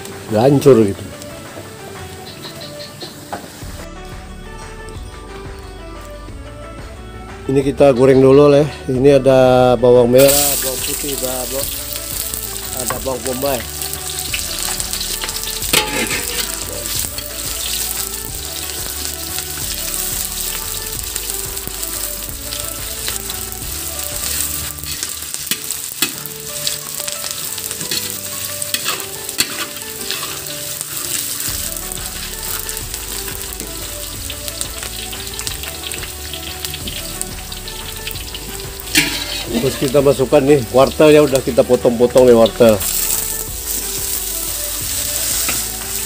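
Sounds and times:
onions sizzling in hot oil: 0.0s - 3.7s, 10.2s - 46.0s
spatula scraping a wok: 14.0s - 21.0s, 22.9s - 33.2s, 37.1s - 39.9s.

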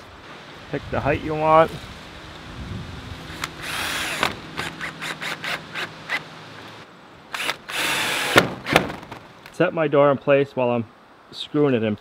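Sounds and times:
drill motor running: 3.4s - 6.2s, 7.4s - 8.4s.

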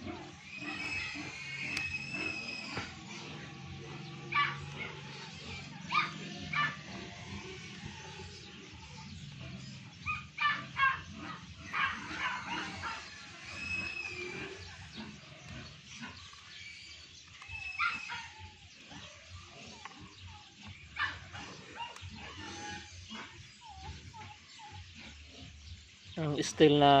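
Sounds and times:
dog barking: 4.3s - 5.0s, 5.8s - 6.9s, 10.0s - 13.1s, 21.0s - 22.0s.

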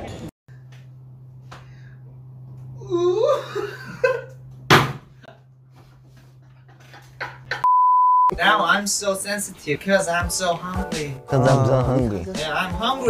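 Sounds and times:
man laughing and squealing: 2.8s - 4.4s
sharp slap: 4.7s - 5.1s.

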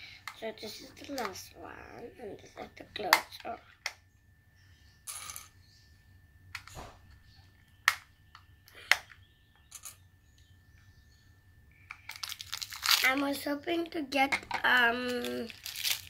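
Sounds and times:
plastic rustle: 12.1s - 13.3s, 15.0s - 16.0s.

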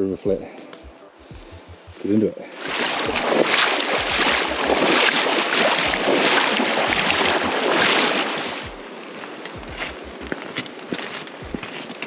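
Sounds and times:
faint low thumps: 0.3s - 2.4s, 3.0s - 3.4s, 4.0s - 4.9s, 8.7s - 8.9s, 9.6s - 10.4s, 11.4s - 11.7s
river water rushing and splashing: 2.0s - 12.0s.

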